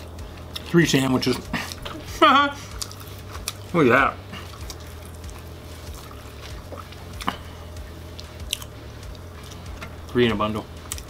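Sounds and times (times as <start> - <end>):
low hum: 0.0 - 11.0
sandwiches squishing: 2.6 - 7.5.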